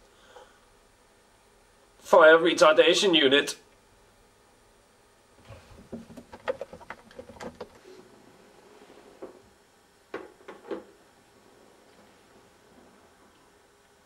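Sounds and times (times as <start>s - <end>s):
objects clicking and knocking: 5.9s - 7.8s.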